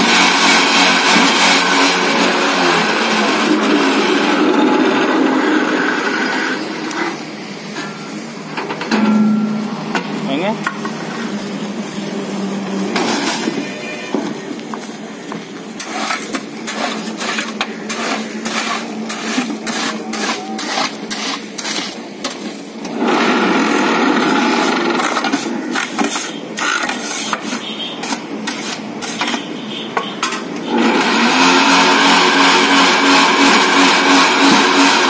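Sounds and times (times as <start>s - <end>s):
loud continuous machine rattle: 0.0s - 6.6s, 22.9s - 29.4s, 30.7s - 35.0s.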